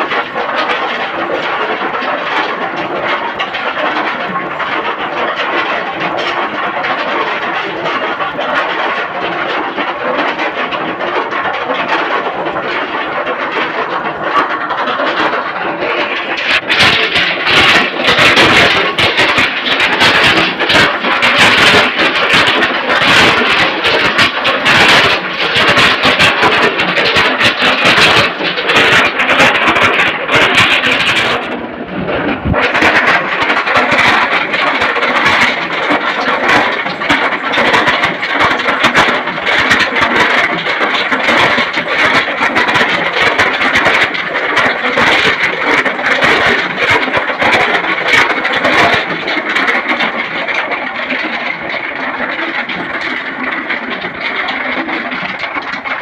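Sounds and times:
drum mill engine running: 0:00.0 - 0:56.0
rock tumbling in drum: 0:10.2 - 0:50.2.

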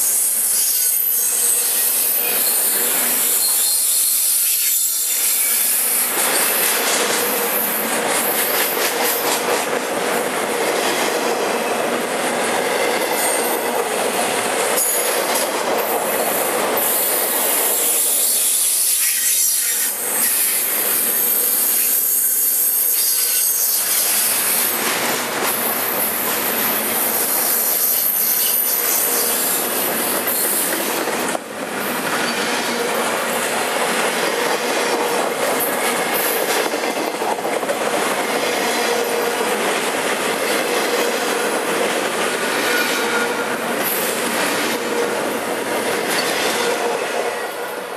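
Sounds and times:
freight train rolling past: 0:00.0 - 0:47.9.

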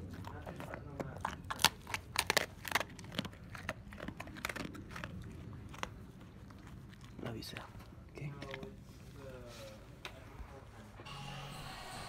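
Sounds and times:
dog crunching and chewing treat: 0:00.0 - 0:09.2.

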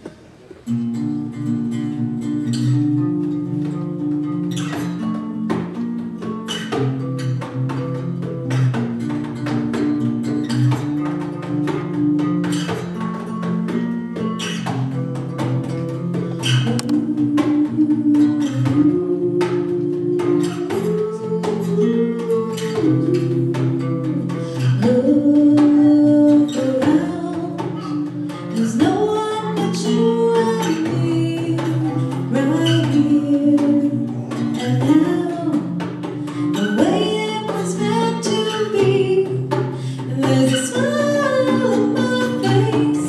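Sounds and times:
acoustic guitar: 0:00.0 - 0:43.0
woman singing: 0:16.4 - 0:43.0.

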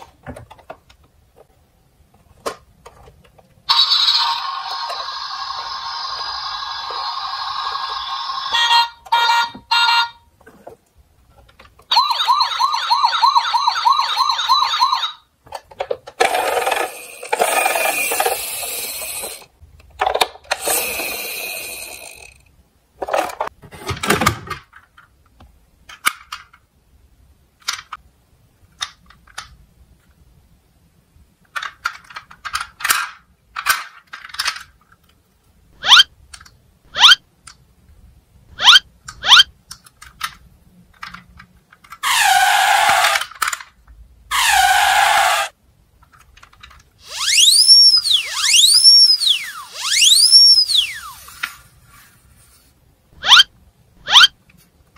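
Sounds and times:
toy siren sound effects: 0:03.7 - 0:10.2, 0:11.9 - 0:15.2, 0:35.8 - 0:36.1, 0:36.9 - 0:37.2, 0:38.6 - 0:39.5, 0:47.0 - 0:51.3, 0:53.2 - 0:54.4
plastic toys clicking and rattling: 0:13.8 - 0:26.7, 0:27.6 - 0:28.1, 0:28.7 - 0:30.2, 0:31.4 - 0:35.3, 0:36.3 - 0:36.6, 0:39.0 - 0:51.7.

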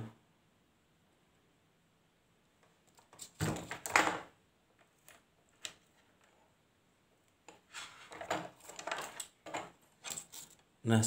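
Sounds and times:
knocks and rattles on workbench: 0:07.9 - 0:10.2.

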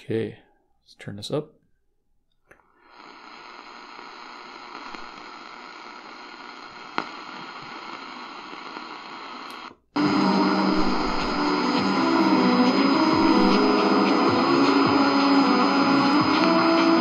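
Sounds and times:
radio static hiss: 0:02.8 - 0:17.0
radio station broadcast: 0:02.9 - 0:17.0
click: 0:09.4 - 0:09.8.

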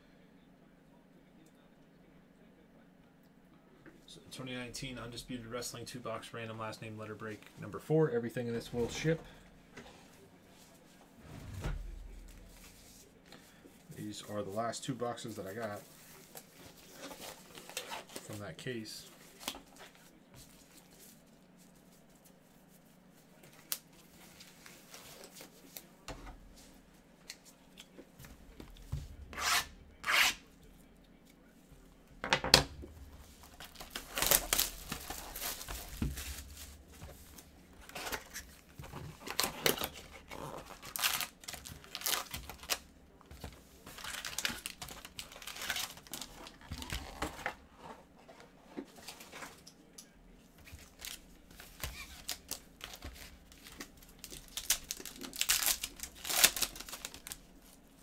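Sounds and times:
foil packs crinkling: 0:33.2 - 0:47.6, 0:50.6 - 0:57.8
plastic shrink-wrap tearing: 0:33.5 - 0:36.7, 0:39.2 - 0:42.8, 0:43.9 - 0:47.2, 0:50.8 - 0:57.4.

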